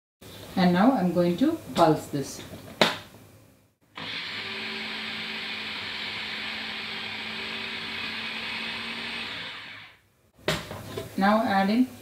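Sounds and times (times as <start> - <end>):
food processor whirring: 3.9 - 10.0.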